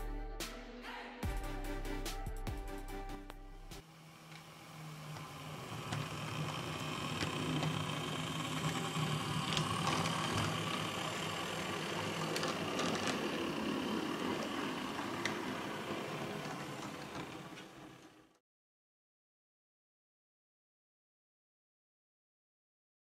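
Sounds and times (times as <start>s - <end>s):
model locomotive drone: 3.8s - 18.4s.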